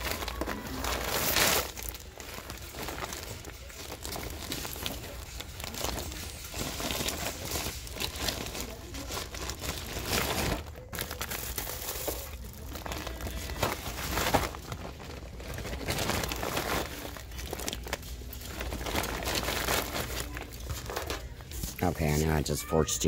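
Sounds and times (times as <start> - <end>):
rustling and crinkling: 0.0 - 22.7.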